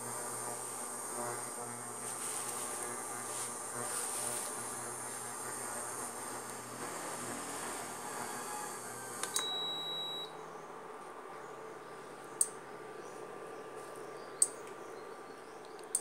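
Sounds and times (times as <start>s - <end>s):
steady high hiss: 0.0s - 11.2s
short electronic beep: 9.4s - 10.3s
sharp clicks: 15.6s - 16.0s.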